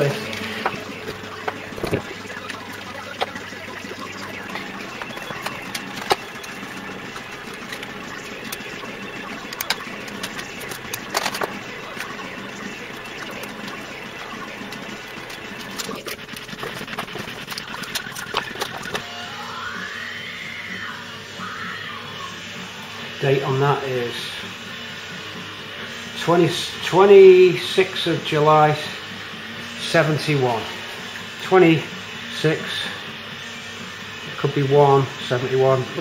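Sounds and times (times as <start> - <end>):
wavering whistle-like tone: 17.5 - 24.4.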